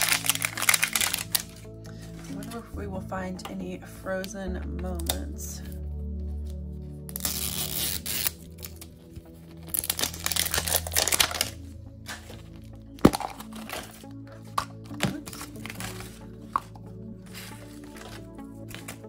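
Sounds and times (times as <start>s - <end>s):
plastic wrapper crinkling and tearing: 0.0s - 1.7s, 7.1s - 19.0s
background music: 0.0s - 19.0s
paper rustling: 7.5s - 19.0s.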